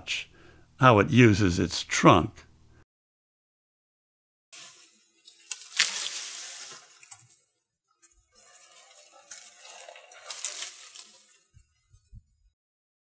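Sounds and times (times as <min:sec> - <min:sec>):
leafy branches rustling: 0:04.6 - 0:07.4, 0:08.2 - 0:12.0
twigs crackling and snapping: 0:04.6 - 0:07.4, 0:08.0 - 0:11.6.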